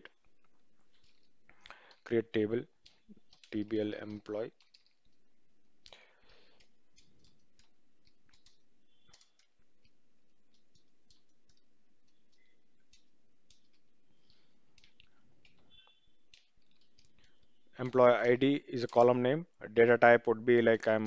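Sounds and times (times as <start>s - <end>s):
keyboard keystrokes: 2.8s - 5.1s, 6.6s - 17.4s.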